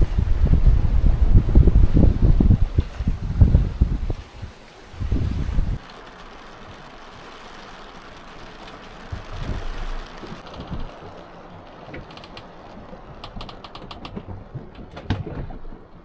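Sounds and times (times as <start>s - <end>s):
wind and water rushing: 0.0s - 16.0s
light scattered clicking: 5.8s - 15.4s.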